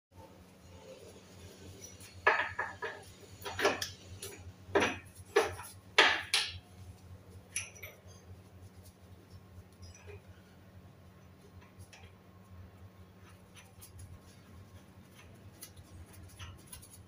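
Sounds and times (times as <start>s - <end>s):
steady low hum: 0.2s - 17.0s
metal tools clanking: 7.5s - 8.3s.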